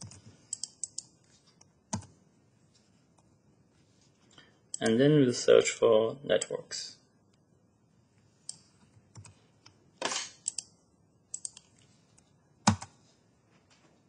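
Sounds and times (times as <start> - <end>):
keyboard and mouse clicks: 0.0 - 2.2, 8.4 - 9.8, 10.4 - 10.7, 11.3 - 13.0.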